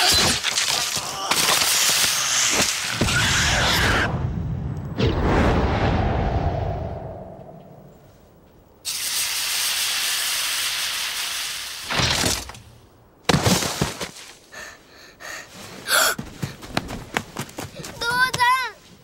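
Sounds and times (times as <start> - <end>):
blast: 2.2 - 7.6
steady hiss: 8.0 - 13.2.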